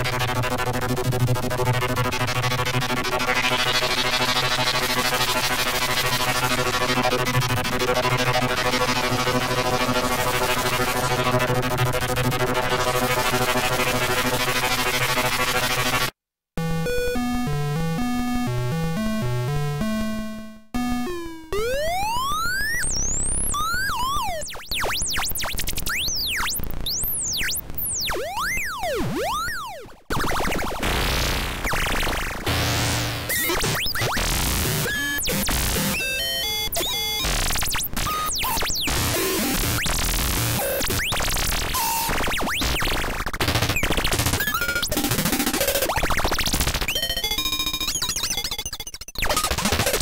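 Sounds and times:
synthesizer pitch sweeps: 0.0s - 16.1s, 16.8s - 25.2s.

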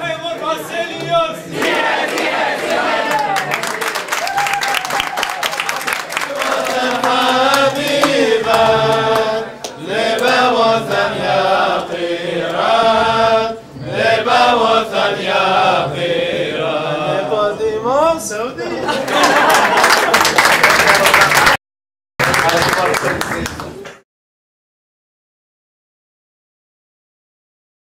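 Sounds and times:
hand clapping: 1.0s - 11.1s, 19.2s - 21.6s, 22.2s - 24.0s
men singing a chant: 6.3s - 17.8s.

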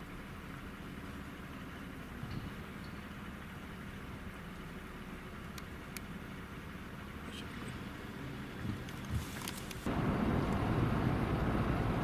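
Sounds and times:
car interior rumble: 0.0s - 12.0s
rushing wind and road noise: 7.1s - 12.0s.

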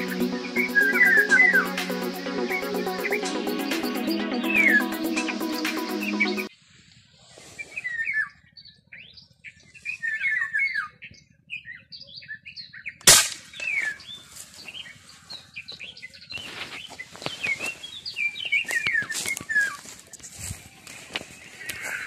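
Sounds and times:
small birds chirping: 7.4s - 22.0s
gunshot crack: 13.1s - 13.8s
rustling through dry grass: 13.4s - 22.0s.

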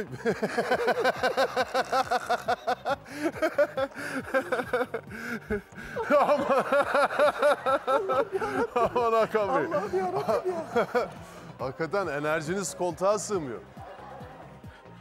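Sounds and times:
men laughing hard: 0.0s - 11.4s.

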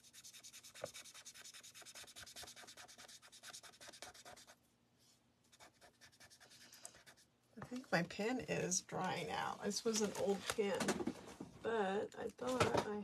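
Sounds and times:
marker scratching on paper: 0.0s - 4.6s, 5.5s - 7.3s.

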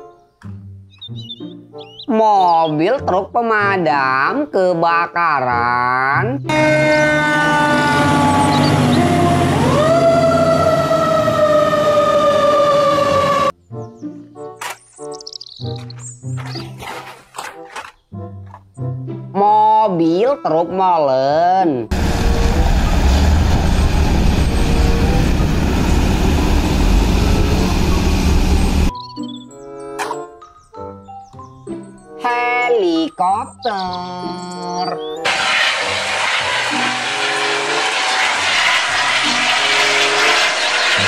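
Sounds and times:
fire engine siren wailing: 6.5s - 13.6s, 21.9s - 28.9s, 35.2s - 41.0s
truck engine rumble: 6.6s - 13.5s, 21.9s - 28.9s, 35.3s - 41.0s.

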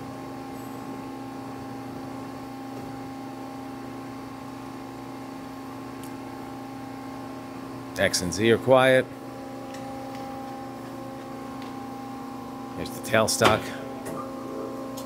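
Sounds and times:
lathe humming: 8.6s - 15.0s.

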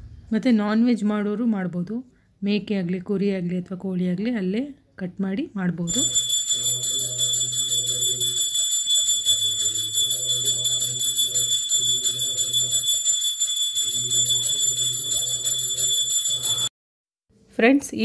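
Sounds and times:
handbell ringing rapidly: 5.9s - 16.7s
low chant-like sound: 5.9s - 16.7s.

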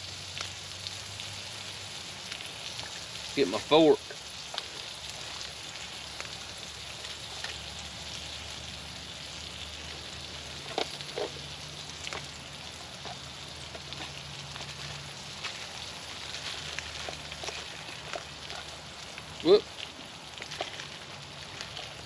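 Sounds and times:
eggs sizzling in a pan: 0.0s - 22.0s
gear clicks and rustles: 9.8s - 22.0s.

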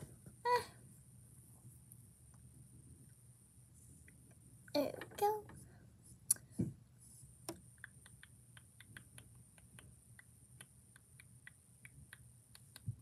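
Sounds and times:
sharp clicks: 7.5s - 12.9s.

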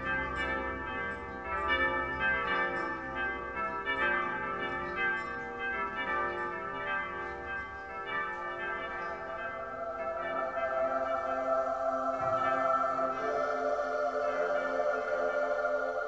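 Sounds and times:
bells ringing: 0.0s - 16.0s
wavering held tone: 9.7s - 16.0s.

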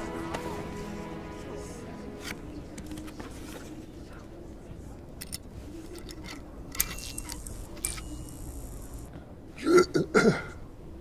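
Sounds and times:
man clearing his throat: 9.6s - 10.6s.

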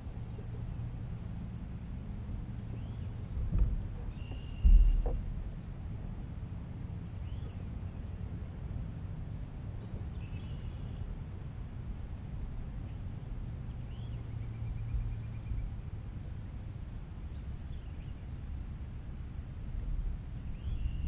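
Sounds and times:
steady high hiss: 0.0s - 21.0s
steady low rumble: 0.0s - 21.0s
bird chirps: 4.0s - 5.8s.

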